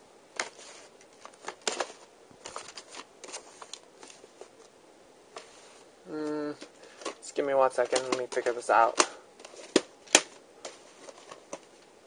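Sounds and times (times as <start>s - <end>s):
paper and packaging rustling: 0.4s - 4.7s, 6.5s - 11.9s.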